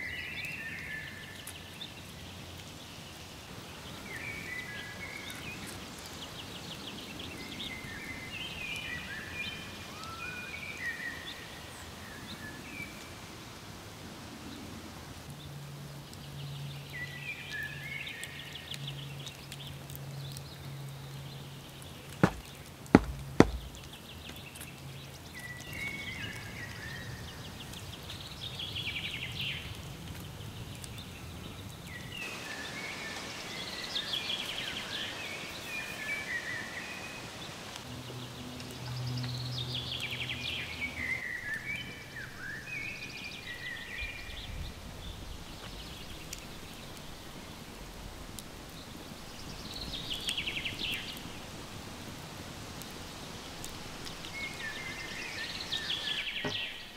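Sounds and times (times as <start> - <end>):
birds singing: 15.4 - 51.8, 52.7 - 56.9
sharp knocks: 22.2 - 23.9.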